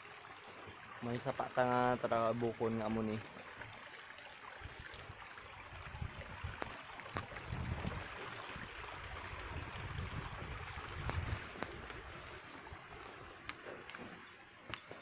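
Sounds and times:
mountain stream rushing: 0:00.0 - 0:15.0
wind rumbling on microphone: 0:04.6 - 0:14.2.

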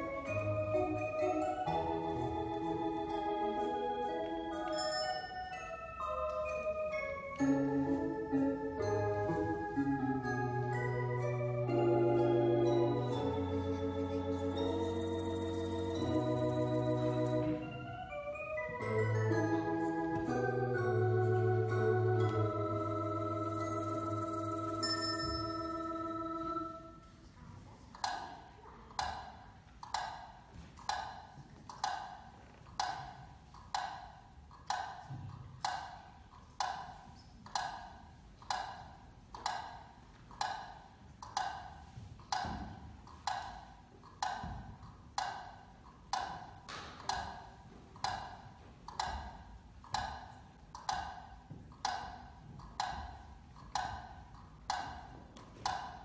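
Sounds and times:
held musical chord: 0:00.0 - 0:27.0
clock ticking: 0:28.0 - 0:55.1.

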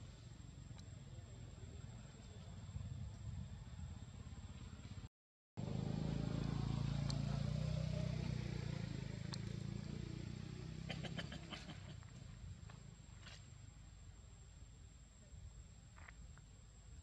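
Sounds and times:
vehicle engine humming: 0:00.0 - 0:14.8
faint sharp clicks: 0:00.7 - 0:00.9, 0:09.2 - 0:09.5.

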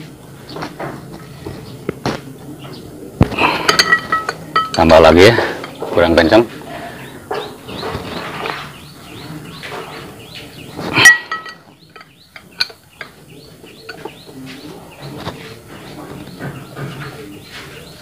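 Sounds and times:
birds chirping: 0:00.0 - 0:18.0
spanner metallic clank: 0:03.6 - 0:05.0, 0:11.0 - 0:12.8.

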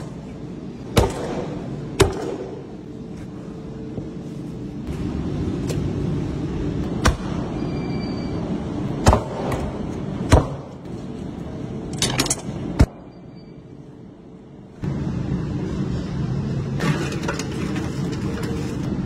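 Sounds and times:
steady low rumble: 0:13.9 - 0:17.3.

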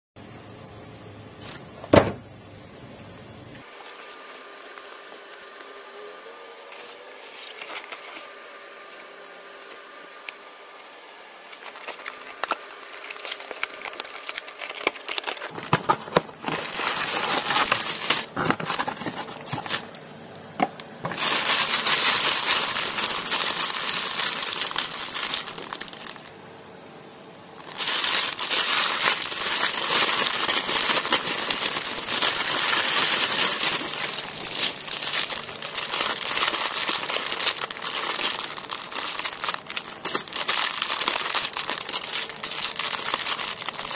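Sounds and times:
plastic bags crinkling: 0:11.5 - 0:26.3, 0:27.6 - 0:43.9.

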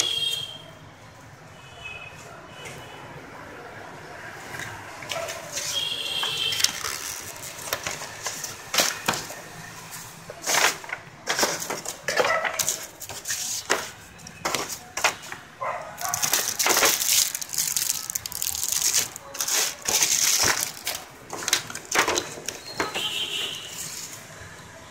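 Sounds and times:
paper rustling: 0:05.1 - 0:09.3, 0:09.9 - 0:24.2
plastic crinkling: 0:05.1 - 0:09.3, 0:10.4 - 0:24.2.

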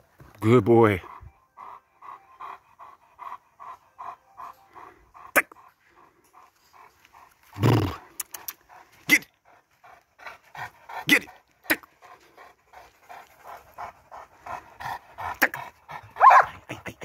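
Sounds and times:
dog panting: 0:00.8 - 0:17.0.

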